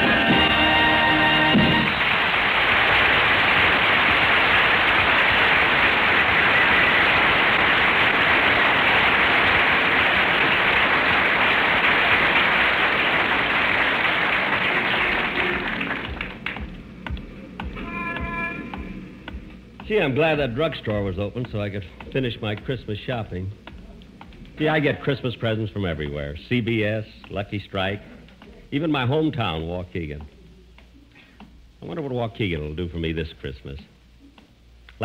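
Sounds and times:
audience applauding: 0:00.0 - 0:18.4.

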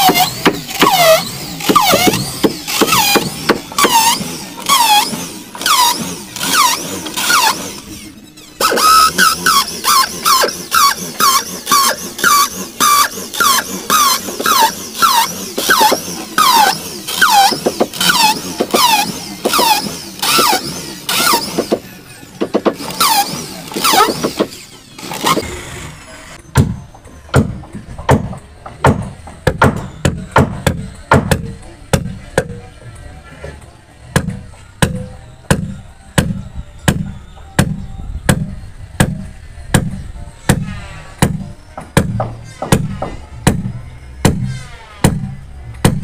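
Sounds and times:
electric drill whining: 0:00.0 - 0:26.4.

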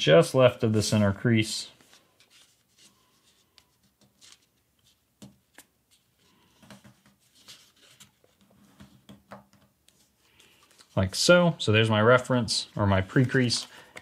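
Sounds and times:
paper rustling and crinkling: 0:01.7 - 0:09.0, 0:12.2 - 0:14.0.

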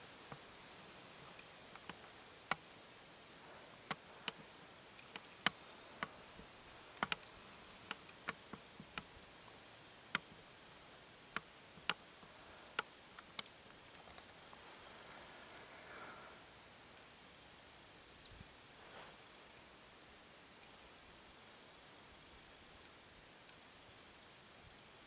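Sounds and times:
faint steady hiss: 0:00.0 - 0:25.0
sharp irregular clicks: 0:01.2 - 0:02.8, 0:03.8 - 0:09.1, 0:10.1 - 0:10.4, 0:11.3 - 0:14.3.

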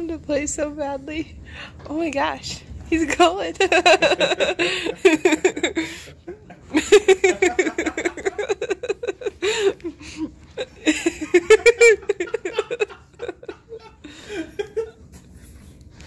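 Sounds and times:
person giggling: 0:03.7 - 0:15.0.

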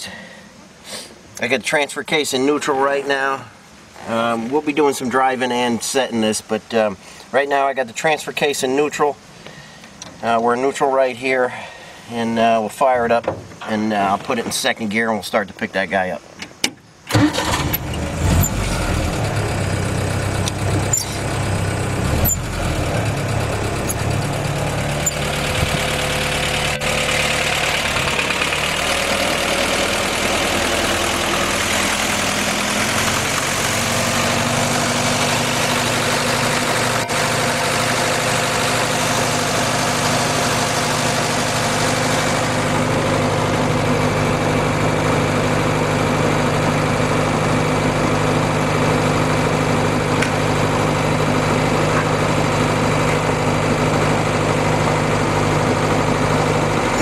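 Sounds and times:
engine running: 0:17.1 - 0:57.0
winch whining: 0:20.3 - 0:43.1.

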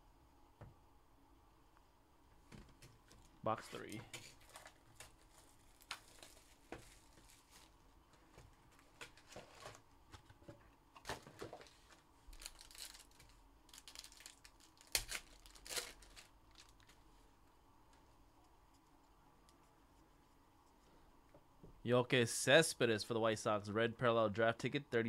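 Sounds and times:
foil packs crinkling and tearing: 0:04.3 - 0:07.8, 0:11.2 - 0:17.0.

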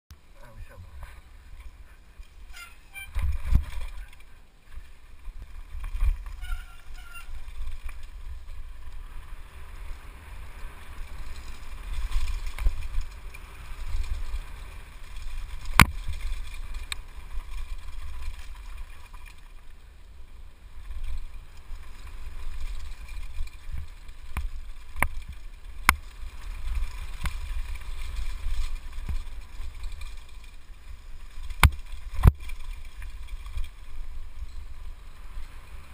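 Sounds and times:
tyres on loose dirt: 0:00.1 - 0:35.9
wind rumbling on microphone: 0:00.2 - 0:35.9
bike knocks and rattles: 0:02.5 - 0:08.9, 0:11.0 - 0:19.3, 0:20.9 - 0:34.8.

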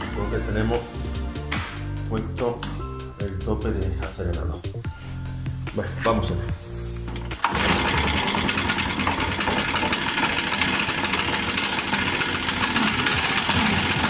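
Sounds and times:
leaf blower engine running: 0:07.2 - 0:14.0.

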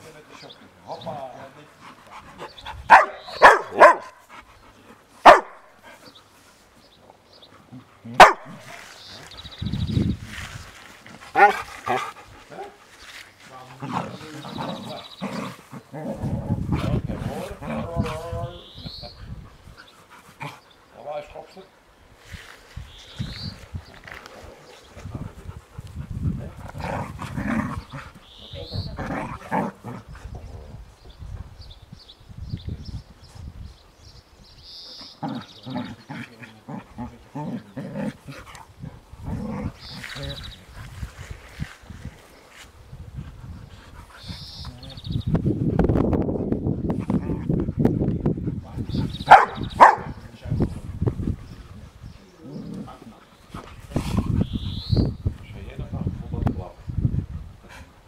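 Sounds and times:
dog barking: 0:02.9 - 0:04.2, 0:05.2 - 0:05.7, 0:08.2 - 0:08.7, 0:11.4 - 0:11.6, 0:49.3 - 0:50.2
dogs growling: 0:13.6 - 0:18.5, 0:19.8 - 0:21.0, 0:24.1 - 0:28.3, 0:28.9 - 0:30.3, 0:35.1 - 0:40.8, 0:46.9 - 0:54.5.

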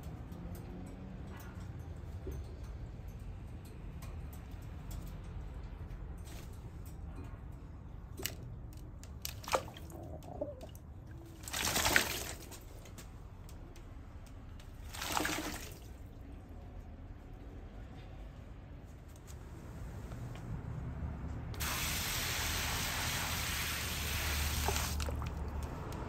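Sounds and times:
pigeon splashing water: 0:08.2 - 0:12.9, 0:14.7 - 0:16.2, 0:21.6 - 0:26.0.

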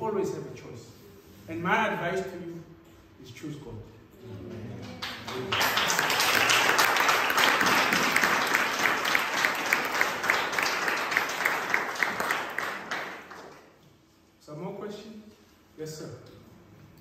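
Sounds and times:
sharp rhythmic claps: 0:04.8 - 0:13.8
audience applause: 0:04.9 - 0:13.7.

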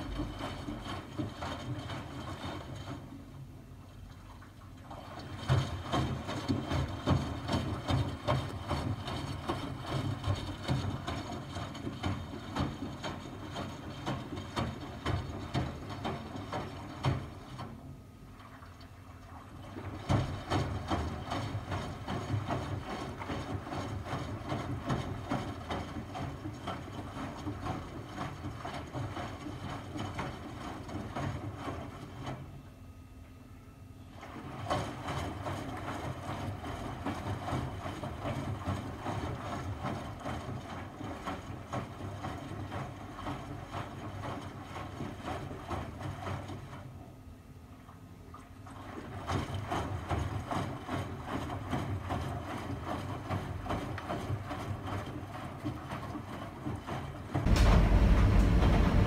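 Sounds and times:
water sloshing and knocking: 0:00.0 - 0:32.4, 0:48.4 - 0:59.0
washing machine drum turning: 0:57.4 - 0:59.0.

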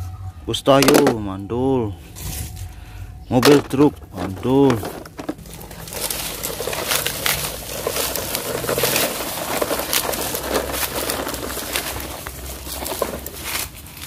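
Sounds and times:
toy trucks rolling over dirt: 0:00.6 - 0:01.2, 0:03.3 - 0:14.0
loose toys rattling: 0:00.8 - 0:01.2, 0:03.3 - 0:14.0.

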